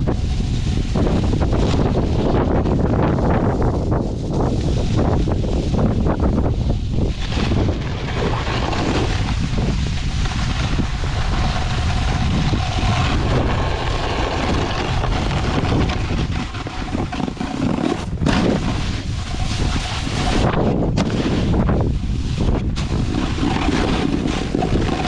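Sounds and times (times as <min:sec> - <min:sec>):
snowboard sliding on snow: 0:00.0 - 0:25.0
wind buffeting microphone: 0:00.0 - 0:25.0.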